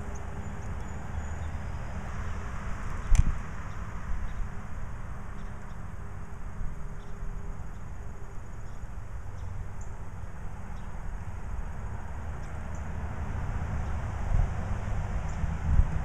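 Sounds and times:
distant road traffic: 0.0s - 16.0s
wind: 0.0s - 16.0s.

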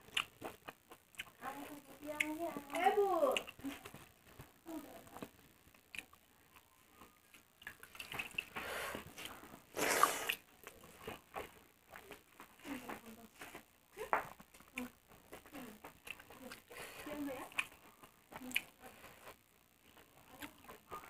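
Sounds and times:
wet mouth smacking while eating: 7.3s - 8.6s, 9.2s - 12.2s, 17.5s - 18.8s
loud slurp: 9.7s - 10.4s.

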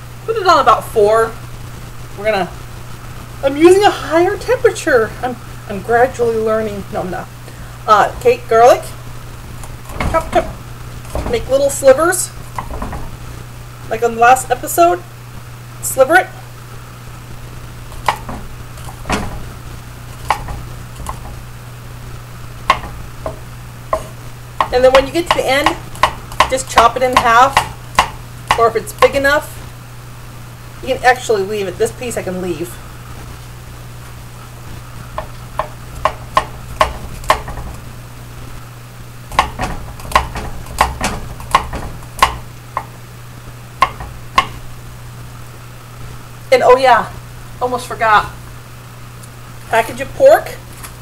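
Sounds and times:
knife knocking on wooden board: 9.9s - 11.5s, 12.6s - 13.1s, 18.0s - 19.5s, 20.2s - 21.4s, 22.7s - 28.2s, 35.2s - 37.8s, 39.3s - 42.9s, 43.8s - 44.6s.

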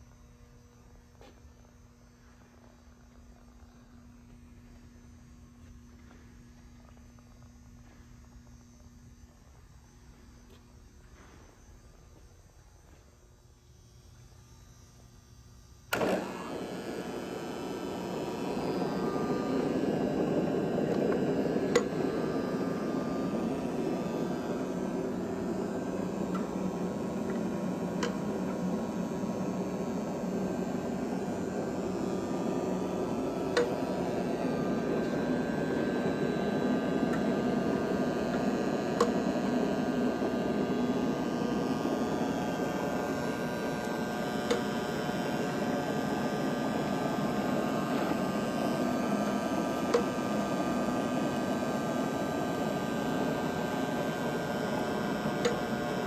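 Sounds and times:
grinder motors running: 15.9s - 56.0s.

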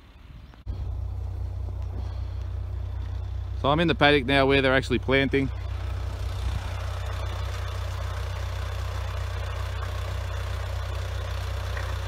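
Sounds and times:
engine running: 0.5s - 12.0s.

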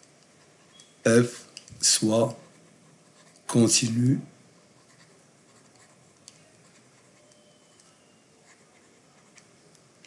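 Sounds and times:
stylus strokes on a tablet: 0.0s - 3.8s, 4.6s - 10.0s
soft clicks: 6.2s - 6.4s, 7.3s - 8.0s.

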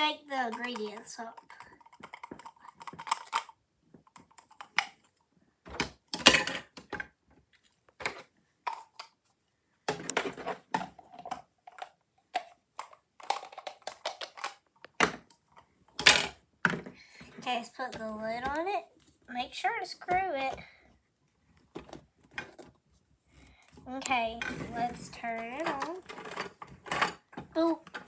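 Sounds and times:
plastic toy pieces rattling: 0.3s - 5.0s, 10.0s - 15.1s, 23.9s - 28.0s.

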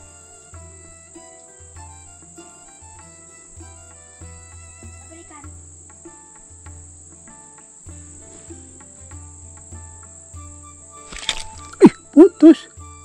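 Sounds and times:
high-pitched insect drone: 0.0s - 9.0s, 10.3s - 13.0s
soft background music: 0.0s - 13.0s.

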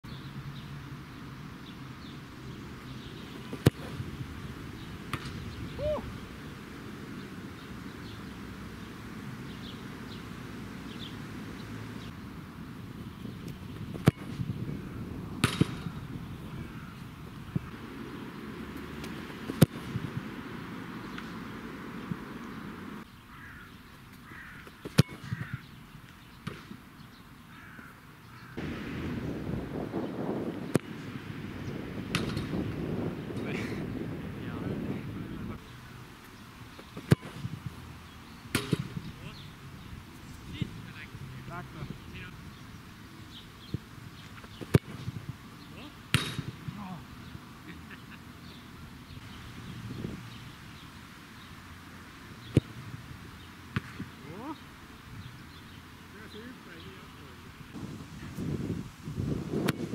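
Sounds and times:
boot kicking football: 3.4s - 4.1s, 15.4s - 16.0s, 19.0s - 20.2s, 24.7s - 25.5s, 36.8s - 37.6s
bird calling: 4.8s - 6.5s, 15.8s - 18.5s, 22.0s - 28.7s.

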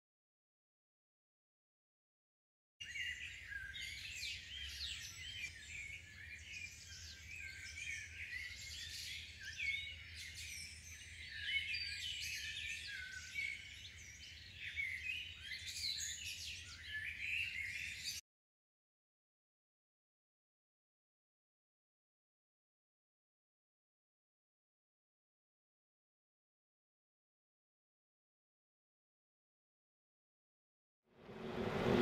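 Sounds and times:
songbirds chirping and trilling: 2.8s - 18.2s.

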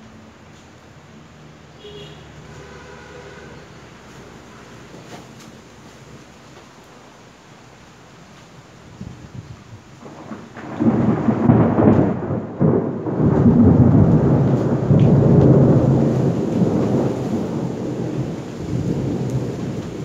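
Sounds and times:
rolling thunder rumble: 9.0s - 20.0s.

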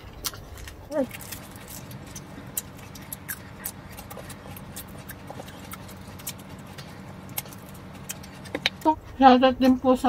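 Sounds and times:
low steady hum: 0.0s - 10.0s
people chewing food: 0.0s - 10.0s.

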